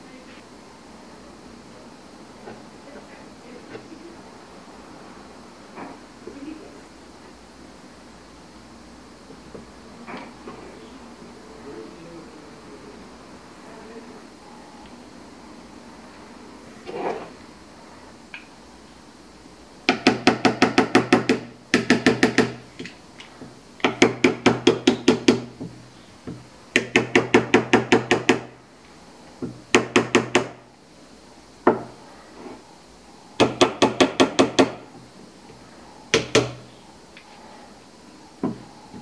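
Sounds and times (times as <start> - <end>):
small hammer tapping: 36.1 - 36.6.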